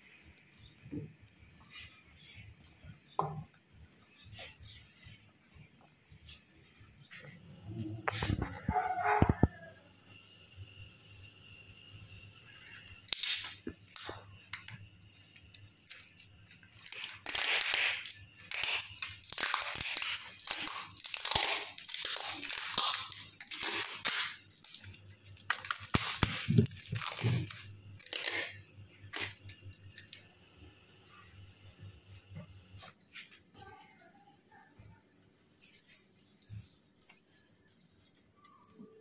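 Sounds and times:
adhesive tape pulled off roll: 0:15.8 - 0:29.4.

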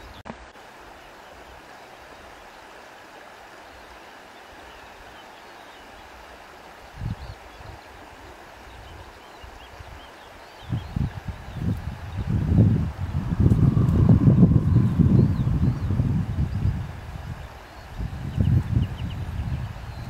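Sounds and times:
flowing water rushing: 0:00.0 - 0:20.0.

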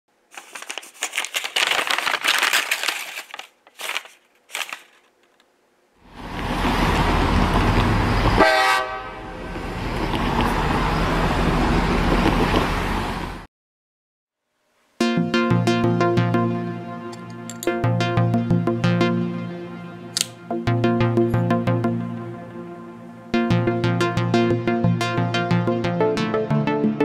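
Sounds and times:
paper crackling: 0:00.3 - 0:05.5
train rumbling: 0:06.2 - 0:08.5, 0:09.2 - 0:13.4
train horn: 0:08.4 - 0:09.6.

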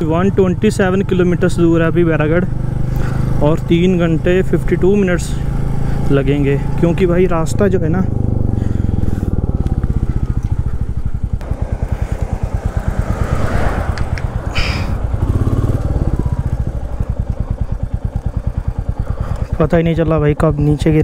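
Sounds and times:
motorcycle engine idling: 0:00.0 - 0:21.0
rising hiss: 0:12.2 - 0:16.2.

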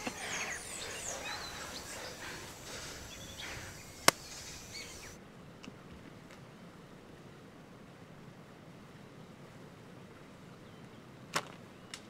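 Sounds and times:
high chirps: 0:00.0 - 0:05.2.

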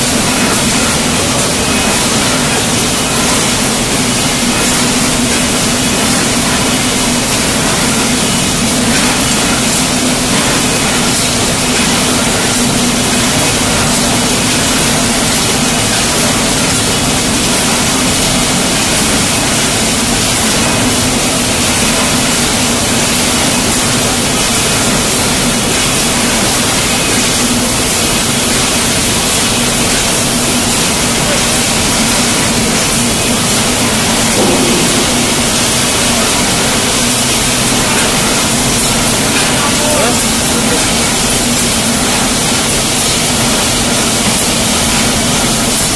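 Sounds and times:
production line machinery din: 0:00.0 - 0:45.9
constant low hum: 0:34.3 - 0:38.4.

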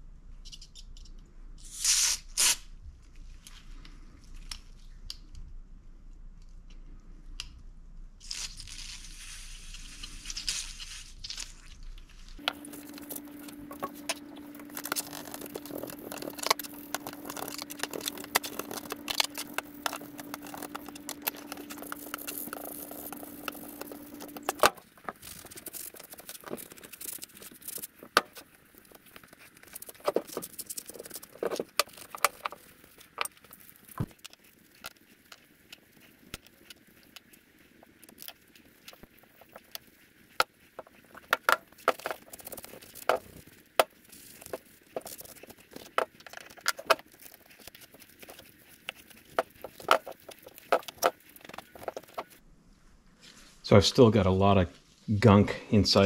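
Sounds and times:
machine humming with hiss: 0:12.4 - 0:24.7.

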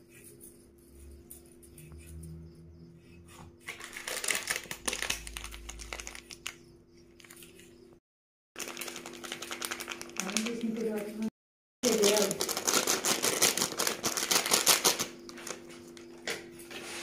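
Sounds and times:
dry crackling of sprinkled spice: 0:03.8 - 0:07.8, 0:08.6 - 0:11.2, 0:11.8 - 0:15.1.

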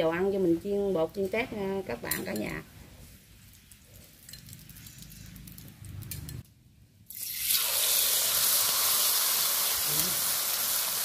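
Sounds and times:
shrimp sizzling in hot oil: 0:07.1 - 0:11.0.

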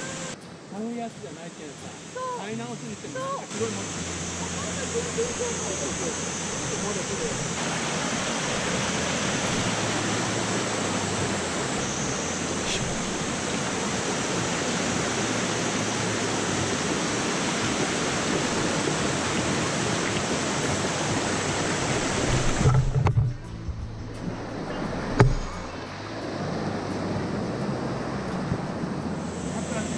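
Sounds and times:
stream rushing over rocks: 0:00.0 - 0:29.9
low thump: 0:25.1 - 0:25.7.

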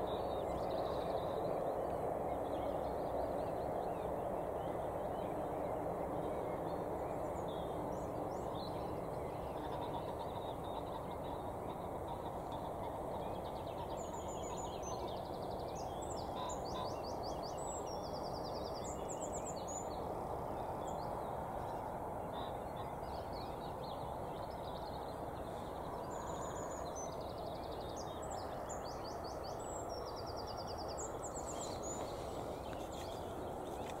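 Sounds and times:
outdoor background noise: 0:00.0 - 0:34.0.

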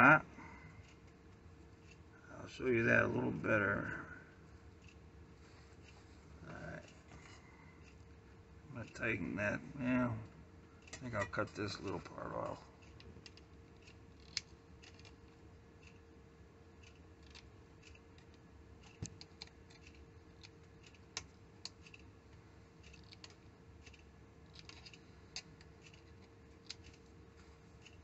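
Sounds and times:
faint steady hum: 0:00.0 - 0:28.0
light ticks of hand tool: 0:10.8 - 0:16.1, 0:22.8 - 0:28.0.

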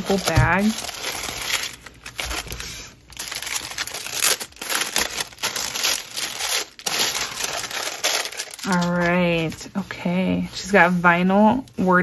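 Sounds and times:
plastic wrapping crinkling: 0:00.0 - 0:10.7.

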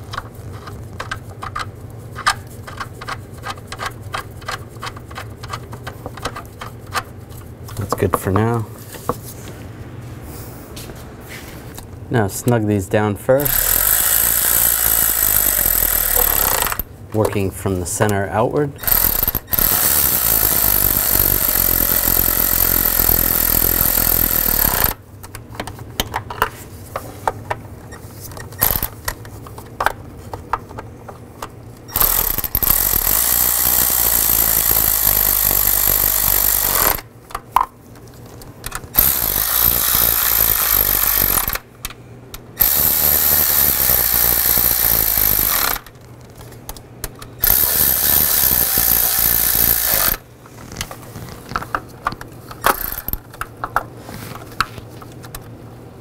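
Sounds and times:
power driver running bolts: 0:13.3 - 0:26.4, 0:28.4 - 0:30.0, 0:30.6 - 0:37.5, 0:38.4 - 0:46.0, 0:46.7 - 0:50.2, 0:51.5 - 0:53.8.

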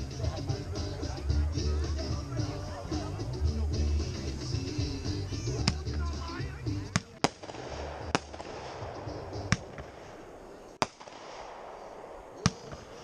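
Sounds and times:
background hiss: 0:00.0 - 0:13.0
fireworks bangs: 0:06.9 - 0:13.0.

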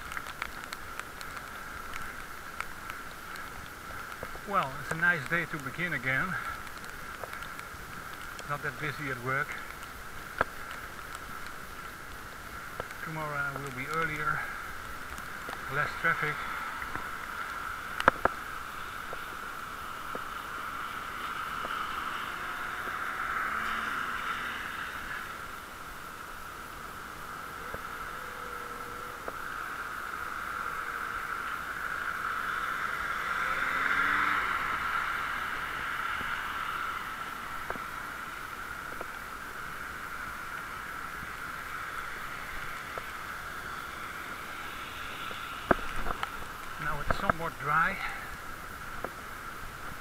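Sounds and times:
faint clicks: 0:00.0 - 0:20.4, 0:37.6 - 0:38.0, 0:38.6 - 0:39.2, 0:45.0 - 0:47.5, 0:48.4 - 0:50.0
bicycle tyres hissing on wet road: 0:00.0 - 0:50.0.

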